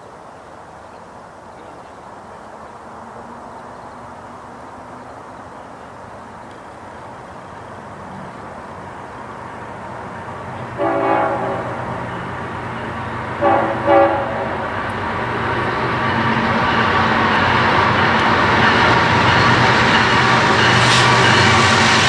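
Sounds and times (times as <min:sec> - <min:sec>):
train rumble: 0:00.1 - 0:22.0
train horn blasts: 0:10.6 - 0:12.3, 0:13.3 - 0:14.8.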